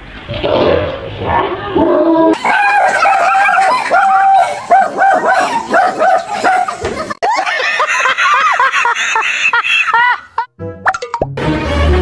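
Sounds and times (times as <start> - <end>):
dog barking rapidly: 2.4 - 6.8.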